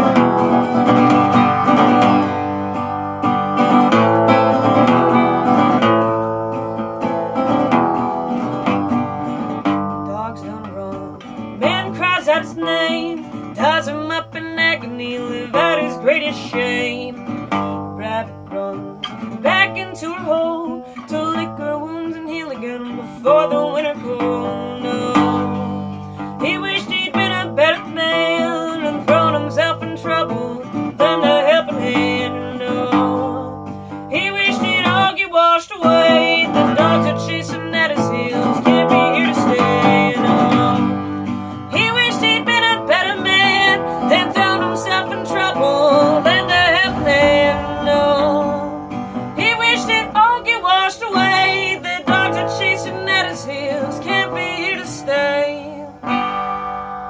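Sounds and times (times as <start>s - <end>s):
resonator guitar: 0.0s - 57.0s
person singing: 10.0s - 41.0s, 41.7s - 56.0s.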